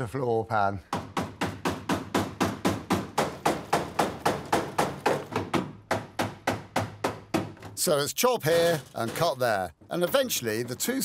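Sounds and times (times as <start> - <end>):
hammer striking chisel on sheet steel: 1.0 - 7.6.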